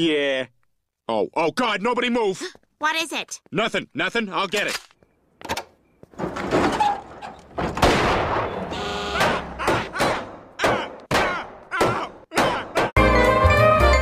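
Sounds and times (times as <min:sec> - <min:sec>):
loud gunshots echoing: 0:07.8 - 0:12.8.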